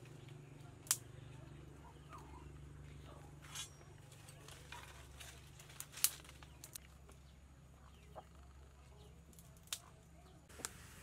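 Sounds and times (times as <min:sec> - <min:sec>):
low steady hum: 0:00.0 - 0:11.0
dry twigs snapping: 0:00.3 - 0:01.1, 0:04.5 - 0:07.2, 0:09.3 - 0:09.9.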